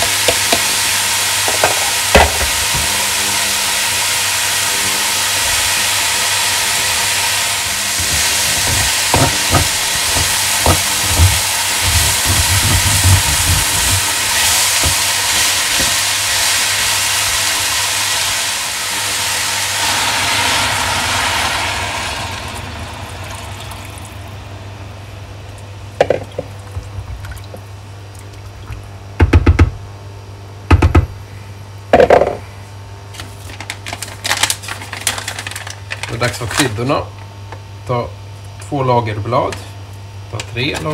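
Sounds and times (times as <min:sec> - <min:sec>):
vegetables sizzling in hot oil: 0:00.0 - 0:23.6
water pouring: 0:19.7 - 0:24.4.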